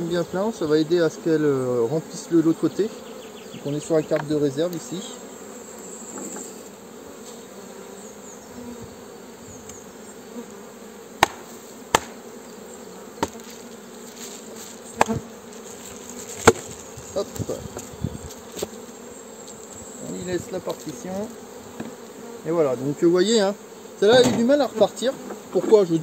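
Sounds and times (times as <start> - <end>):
honeybees humming: 0.0 - 26.0
wooden knocks of hive frames: 3.1 - 4.9, 11.2 - 12.4, 13.1 - 22.4, 24.0 - 25.9.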